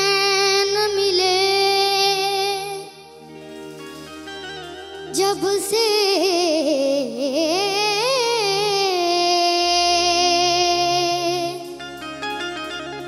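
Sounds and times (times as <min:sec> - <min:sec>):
boy singing wordless melody: 0:00.0 - 0:03.3, 0:05.1 - 0:12.0
faint instrumental accompaniment: 0:00.0 - 0:13.0.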